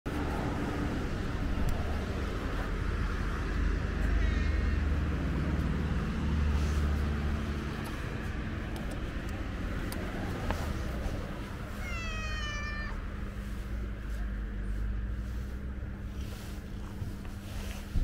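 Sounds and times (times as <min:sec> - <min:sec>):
road traffic rumble: 0:00.1 - 0:18.0.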